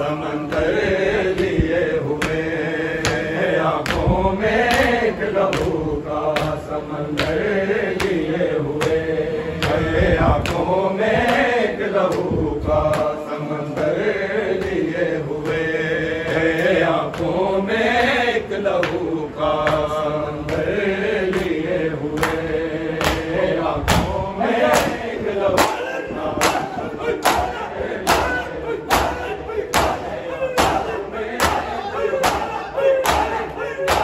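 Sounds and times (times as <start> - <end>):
men chanting a lament: 0.0 - 34.0
hand slaps on chests: 1.4 - 9.0, 22.2 - 23.3, 23.9 - 25.0, 26.4 - 34.0.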